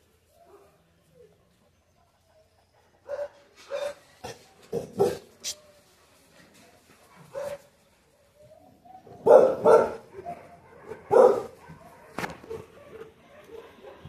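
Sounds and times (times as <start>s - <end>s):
dog barking: 3.0s - 4.0s, 4.7s - 5.3s, 7.3s - 7.6s, 9.1s - 14.0s.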